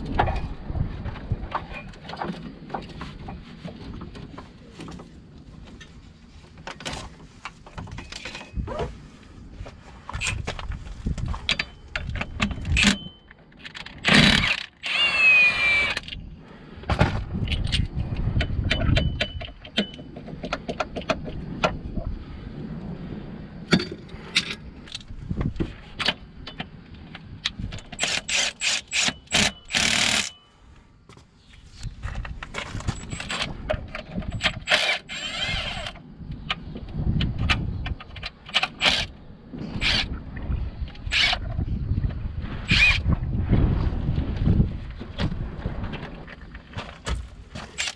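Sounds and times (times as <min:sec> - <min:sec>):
power tool bursts: 0:14.0 - 0:16.0, 0:28.0 - 0:30.3
metal tools clinking: 0:32.8 - 0:35.9.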